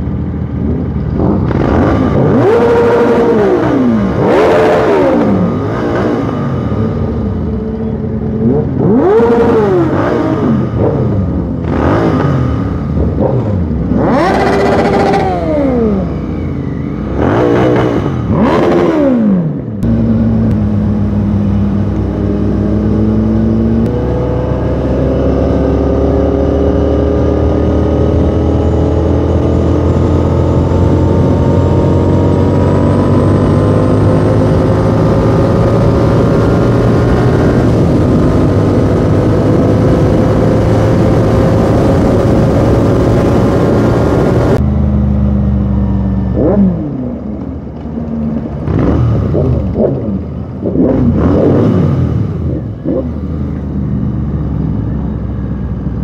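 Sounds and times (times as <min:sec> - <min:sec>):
motorcycle engine revving: 0:00.0 - 0:55.9
motorcycle engine accelerating: 0:00.0 - 0:56.0.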